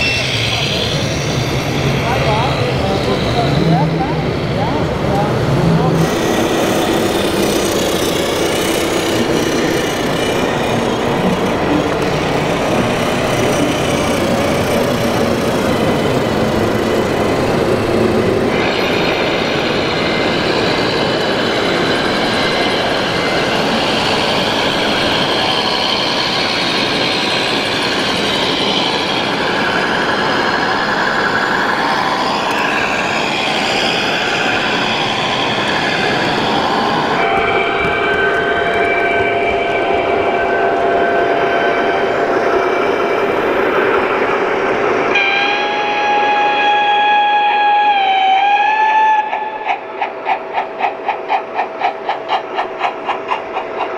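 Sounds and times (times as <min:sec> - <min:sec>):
model trucks running: 0:00.0 - 0:40.9
hall background noise: 0:00.0 - 0:47.8
steady whining tones: 0:00.0 - 0:53.9.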